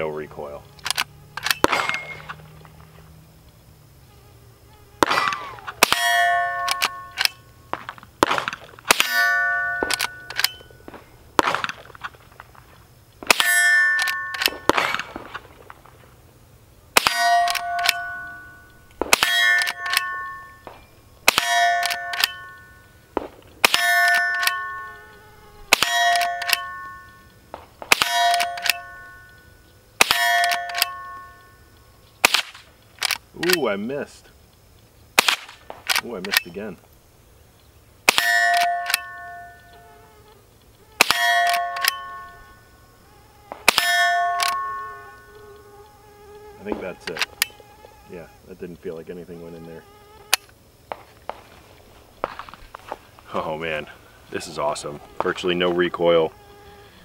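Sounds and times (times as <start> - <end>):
rifle lever clicks: 0.8 - 2.1, 6.6 - 7.4, 9.8 - 10.6, 21.3 - 22.4, 25.8 - 26.8, 27.9 - 28.9, 30.1 - 31.0, 32.3 - 33.6, 38.6 - 39.1, 40.7 - 42.4, 43.7 - 44.6
rifle shots: 0.9 - 2.4, 5.0 - 11.9, 13.2 - 15.7, 17.0 - 22.6, 23.2 - 24.8, 25.6 - 29.1, 30.0 - 31.1, 32.2 - 33.2, 35.2 - 36.1, 38.0 - 39.2, 41.0 - 42.2, 43.5 - 44.8
metallic clang of steel target: 1.4 - 2.4, 5.0 - 7.4, 8.2 - 11.9, 13.2 - 15.4, 17.0 - 22.8, 23.6 - 25.0, 25.7 - 27.3, 27.9 - 29.3, 30.0 - 31.4, 38.1 - 39.6, 41.0 - 42.4, 43.7 - 45.1.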